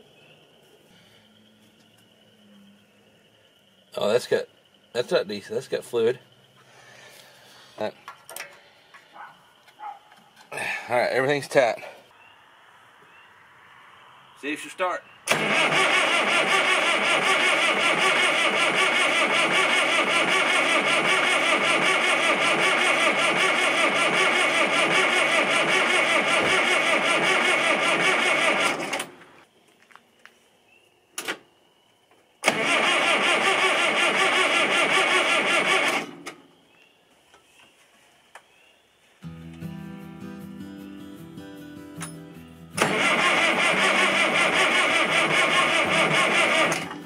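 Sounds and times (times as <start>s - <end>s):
diesel engine cranking: 15.2s - 29.2s, 32.4s - 36.4s, 42.8s - 47.0s.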